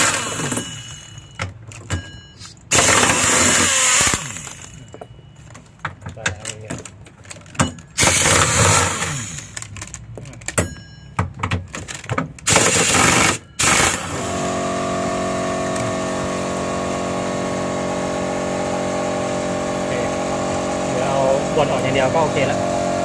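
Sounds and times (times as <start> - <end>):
pneumatic impact wrench hammering: 0.0 - 5.0, 7.4 - 9.7, 10.5 - 20.9
steady machine drone: 2.7 - 5.6, 12.5 - 23.0.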